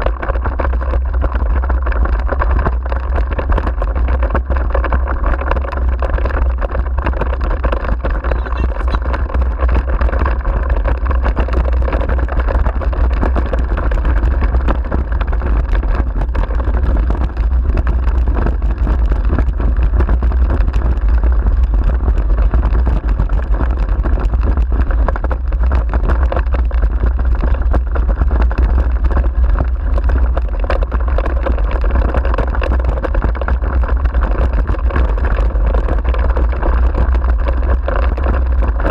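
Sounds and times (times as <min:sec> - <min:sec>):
wheeled rig rumbling and rattling: 0:00.0 - 0:38.9
wind rumble on microphone: 0:00.0 - 0:38.9.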